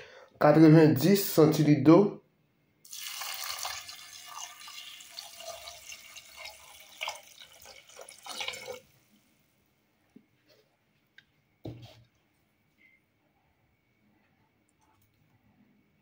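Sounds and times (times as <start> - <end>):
water dripping: 2.9 - 9.0
water pouring into pot: 2.9 - 9.2.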